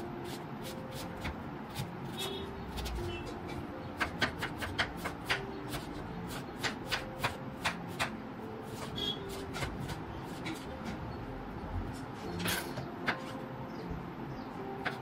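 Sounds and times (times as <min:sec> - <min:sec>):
knife chopping on wooden board: 0:04.0 - 0:08.1, 0:08.7 - 0:11.0.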